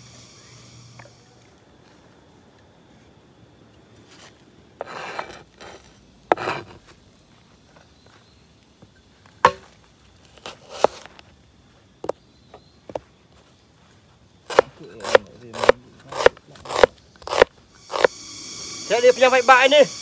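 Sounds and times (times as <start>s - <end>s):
knife scraping cuts: 14.5s - 18.3s.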